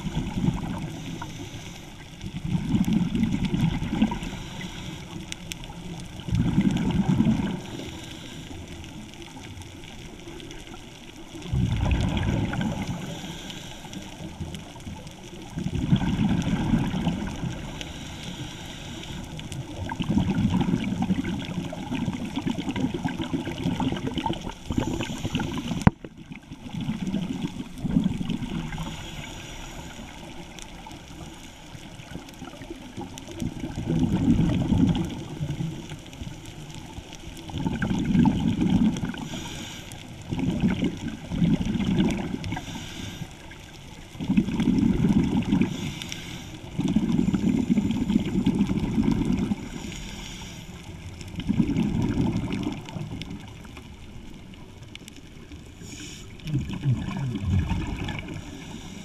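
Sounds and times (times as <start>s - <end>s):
exhaled bubbles rushing: 0.0s - 1.3s, 2.2s - 4.7s, 5.8s - 7.9s, 9.1s - 13.4s, 14.3s - 17.8s, 19.5s - 31.3s, 31.9s - 39.4s, 40.2s - 42.6s, 44.1s - 45.9s, 46.7s - 49.9s, 50.9s - 58.8s
diver breathing: 0.8s - 2.0s, 4.1s - 5.4s, 7.6s - 8.9s, 12.8s - 14.4s, 17.6s - 19.4s, 24.6s - 26.0s, 28.6s - 30.5s, 39.2s - 40.2s, 42.5s - 43.6s, 45.6s - 48.0s, 49.6s - 51.0s, 57.2s - 59.0s.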